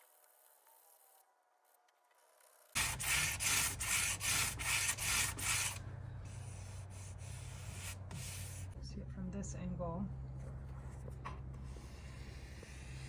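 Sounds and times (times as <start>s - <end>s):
sandpaper rasping on filler: 2.8s - 8.8s
steady low hum: 2.8s - 13.0s.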